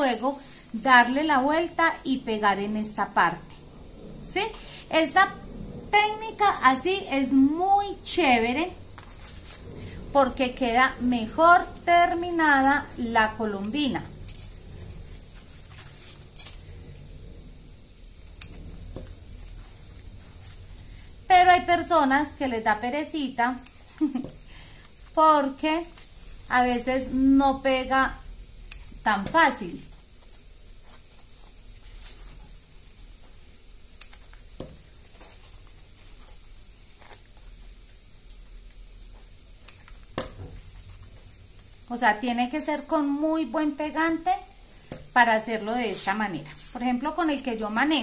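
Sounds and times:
low steady room hum: 0.0s - 48.0s
craft foam being folded: 13.8s - 17.0s.

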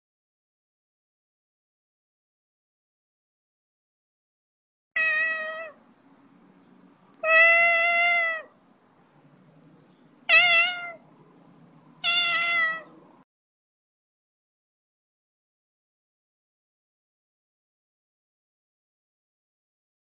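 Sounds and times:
cat meowing: 5.0s - 5.8s, 7.2s - 8.6s, 10.2s - 11.0s, 12.0s - 13.0s
faint low background hum: 5.1s - 13.2s.

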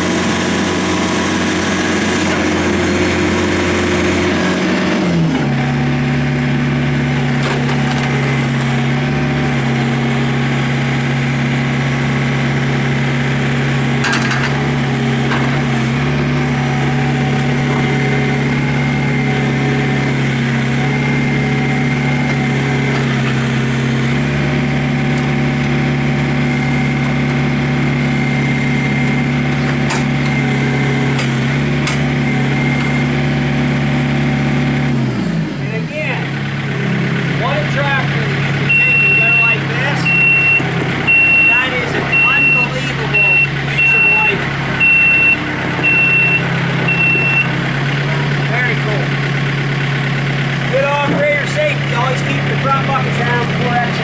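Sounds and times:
diesel engine running: 0.0s - 54.0s.

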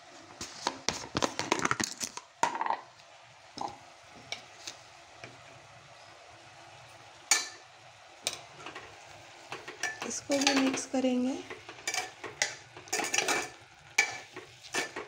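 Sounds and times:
faint sizzle: 0.0s - 15.0s
spoon scraping metal pot: 11.5s - 15.0s.

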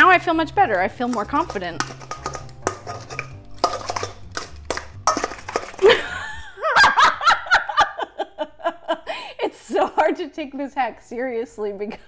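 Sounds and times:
woman laughing: 5.8s - 10.2s.

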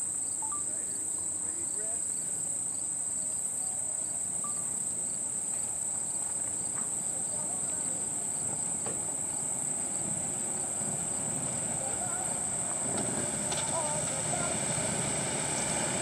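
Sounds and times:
crickets chirping: 0.0s - 16.0s
motorcycles rumbling: 7.0s - 16.0s.

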